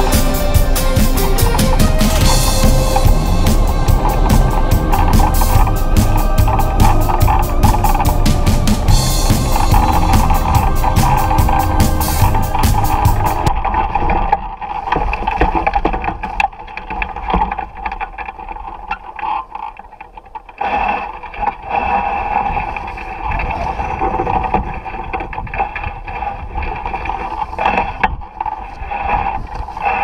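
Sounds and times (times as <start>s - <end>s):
wind rushing over microphone: 22.3s - 30.0s.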